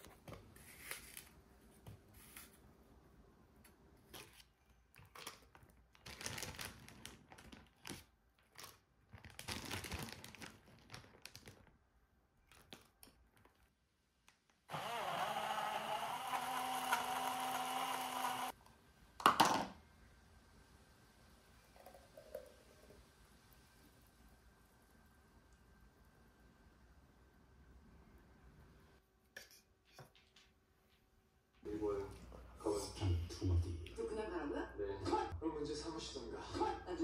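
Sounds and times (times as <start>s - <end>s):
blender motor running: 14.7s - 18.6s.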